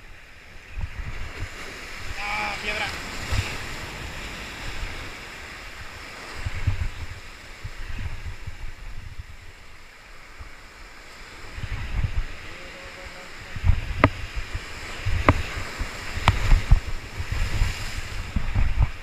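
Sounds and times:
wind buffeting microphone: 0.0 - 19.0
surf breaking against rocks: 1.3 - 7.3, 10.4 - 19.0.

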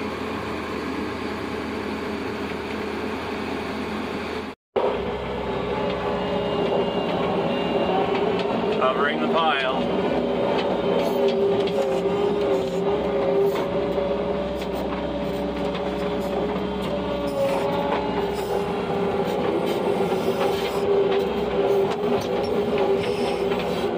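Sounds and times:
tractor engine droning: 0.0 - 23.9.

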